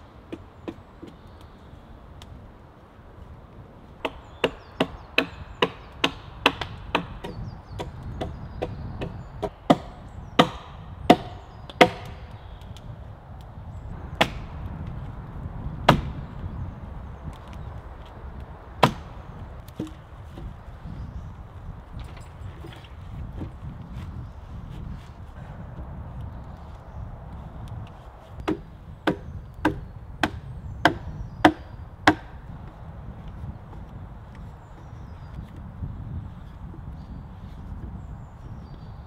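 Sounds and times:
axe striking wood: 4.0 - 12.2, 15.9 - 16.2, 18.8 - 19.1, 28.4 - 32.4.

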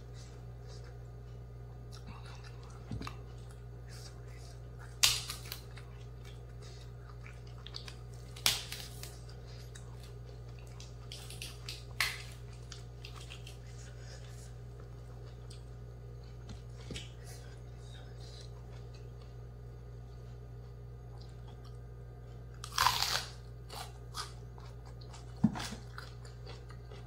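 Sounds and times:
crunchy bites into vegetable: 22.6 - 27.0.

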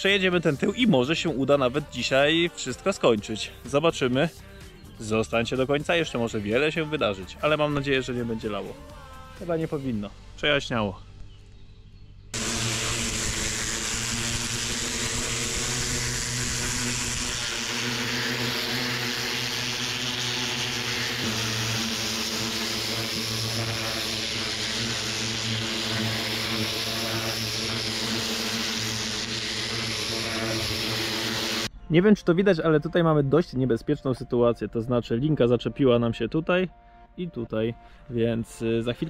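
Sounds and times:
high-pressure water jet hiss: 12.4 - 31.7
pressure washer motor hum: 12.4 - 31.7.

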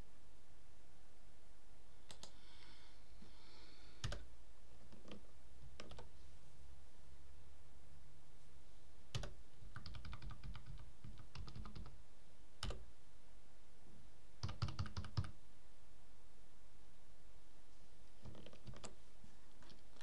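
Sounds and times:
computer keyboard typing: 4.0 - 4.3, 5.8 - 6.1, 9.1 - 12.0, 12.6 - 12.8, 14.4 - 15.4, 18.2 - 19.0.

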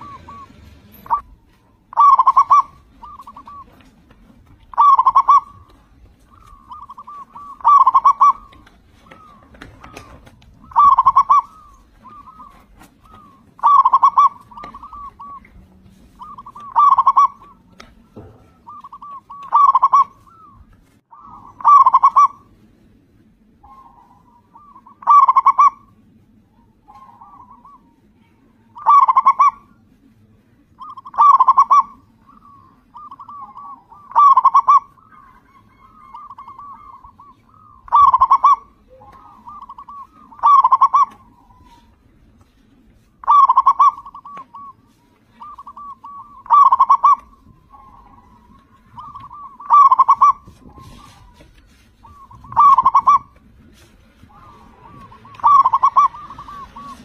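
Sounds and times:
dove cooing: 0.0 - 22.7, 23.5 - 30.0, 30.7 - 57.0.

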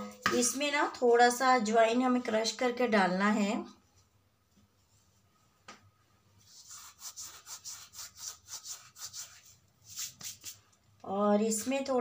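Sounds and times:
hands rubbing together rasping: 6.4 - 10.7.

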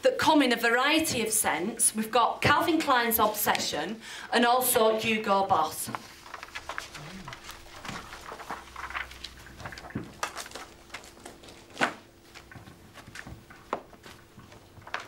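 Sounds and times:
paper pamphlets rustling: 4.8 - 15.0.

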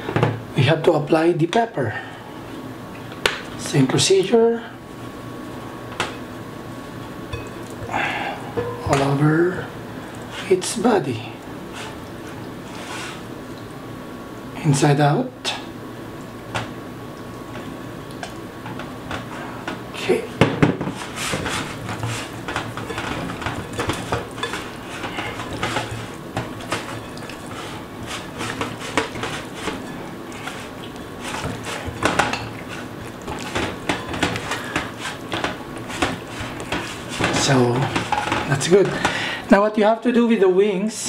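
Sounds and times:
faint steady hum: 0.0 - 41.0
kitchenware clinking and knocking: 8.6 - 9.2.

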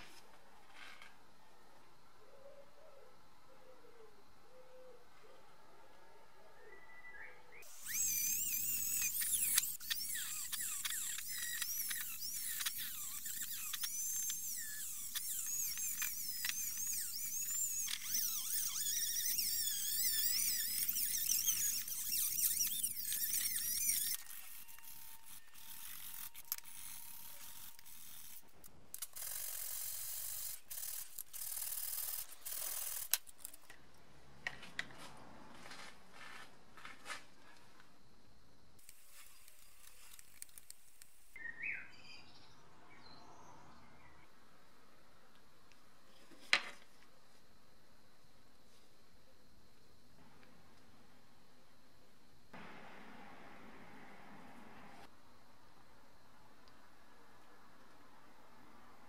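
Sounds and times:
rotary tool whining: 7.6 - 33.8, 38.8 - 41.4
small metal parts clicking: 7.6 - 33.8.

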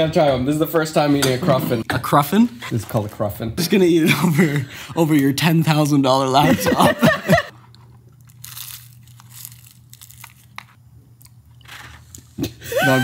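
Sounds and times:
crunchy pastry chewing: 7.6 - 12.3.

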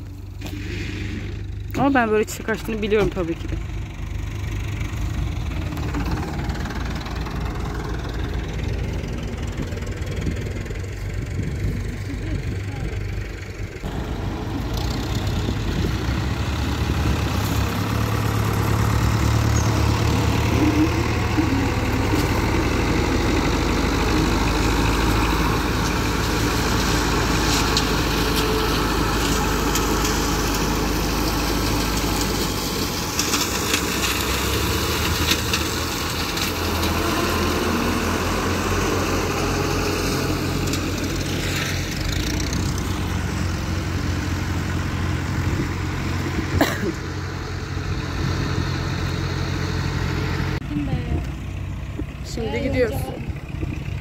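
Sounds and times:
road and wind noise: 0.0 - 54.0
vehicle engine running: 0.0 - 54.0.

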